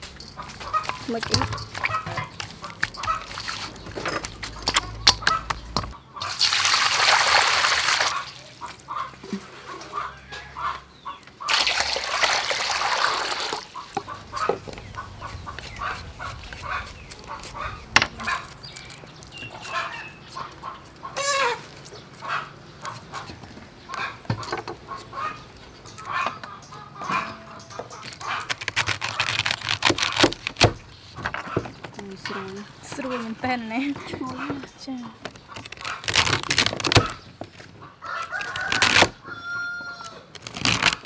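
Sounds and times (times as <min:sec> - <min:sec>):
chickens clucking: 0:00.2 - 0:06.4, 0:08.1 - 0:11.6, 0:13.1 - 0:28.4, 0:31.1 - 0:36.1, 0:37.0 - 0:40.2
water pouring into metal bowl: 0:11.5 - 0:13.7.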